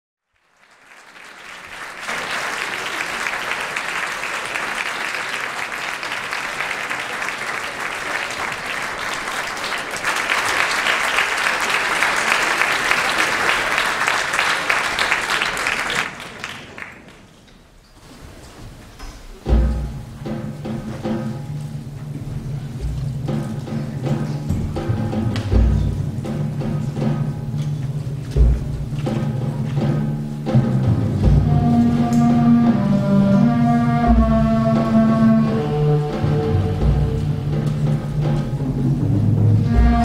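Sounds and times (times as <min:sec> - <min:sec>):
audience applauding: 0:00.2 - 0:17.5.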